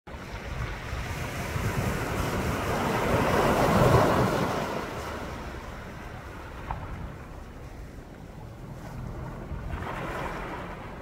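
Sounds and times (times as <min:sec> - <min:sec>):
wave surging onto beach: 0:00.1 - 0:08.0
wind rumble on microphone: 0:00.1 - 0:11.0.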